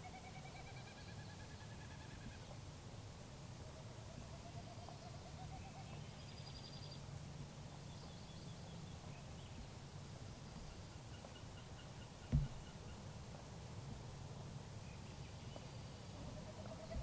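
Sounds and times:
songbird trills: 4.1s - 7.0s, 10.5s - 13.1s
sharp thump: 12.3s - 12.7s.

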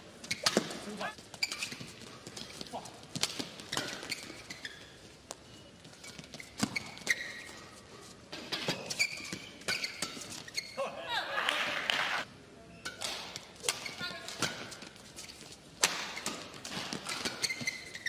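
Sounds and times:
shoe squeaks: 0.2s - 2.9s, 3.6s - 10.8s, 13.7s - 18.0s
racket striking shuttlecock: 15.8s - 17.5s.

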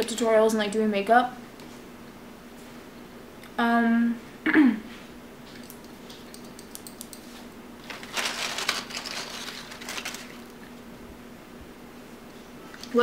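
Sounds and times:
paper container crinkling: 7.8s - 10.7s.

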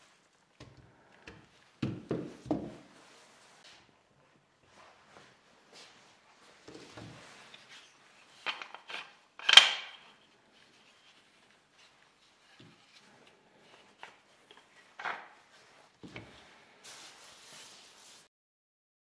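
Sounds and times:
wooden clamp parts clacking: 7.6s - 11.2s.

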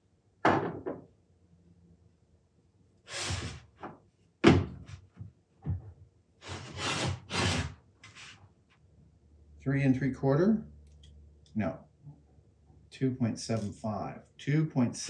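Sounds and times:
blocks scraping on wood: 6.4s - 8.4s.

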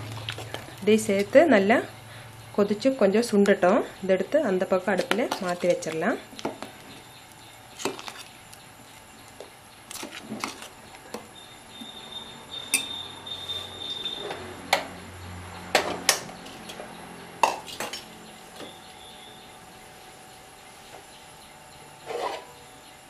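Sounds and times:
spoon clinking against metal pot: 12.6s - 13.1s.

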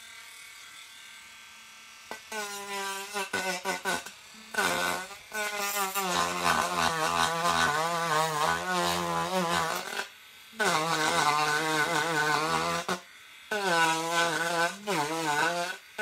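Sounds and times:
rotary tool cutting wood: 0.0s - 16.0s.

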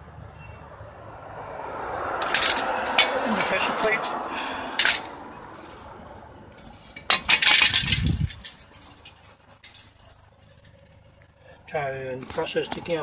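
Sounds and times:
metal tools clinking: 2.2s - 4.0s, 4.6s - 11.3s.

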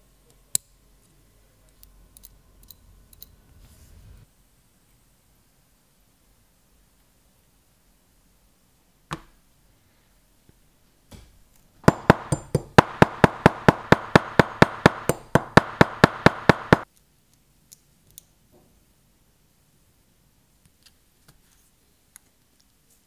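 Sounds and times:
hammer tapping metal pin: 11.8s - 16.8s.

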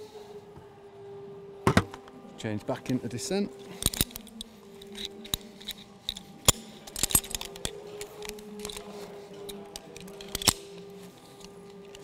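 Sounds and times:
metal karabiners clinking: 3.6s - 12.0s.

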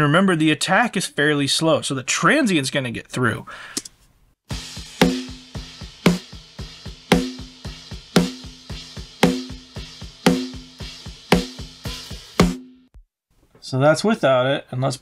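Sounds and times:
snare drum hits: 4.5s - 12.7s
kick drum and cymbal hits: 4.5s - 13.1s.

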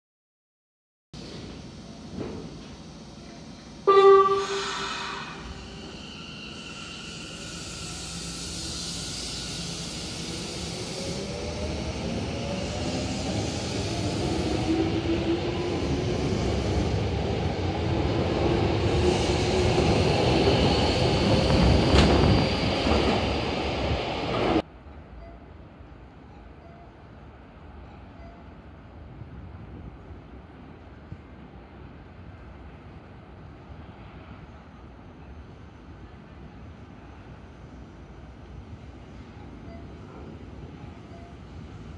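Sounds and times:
train horn blast: 3.9s - 5.4s.

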